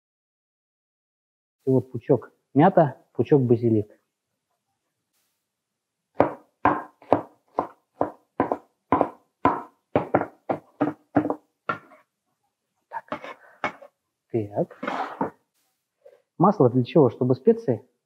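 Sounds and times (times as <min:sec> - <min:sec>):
knife chopping herbs on wooden board: 0:06.2 - 0:12.0
knife scuffing on board: 0:10.2 - 0:12.0, 0:13.1 - 0:13.9, 0:14.7 - 0:15.4.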